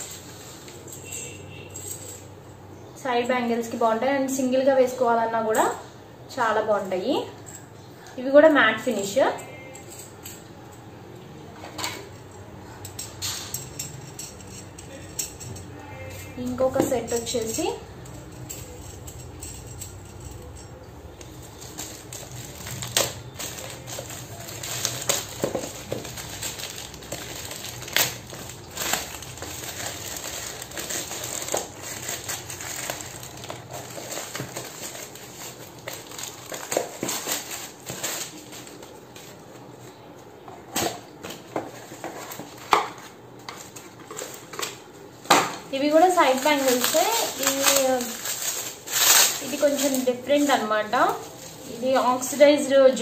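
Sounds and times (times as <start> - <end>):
plastic mailer tearing and crinkling: 21.2 - 39.5, 45.9 - 52.4.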